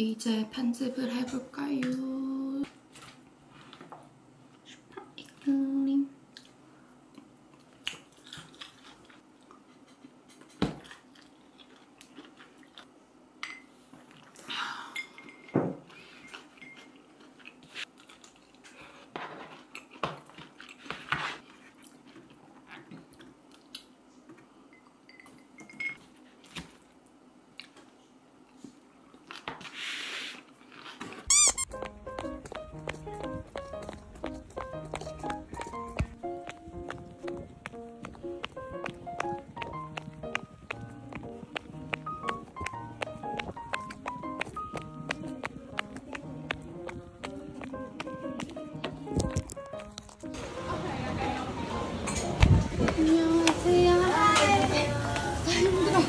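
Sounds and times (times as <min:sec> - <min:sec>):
chewing: 0:06.3 - 0:12.9, 0:16.2 - 0:23.9.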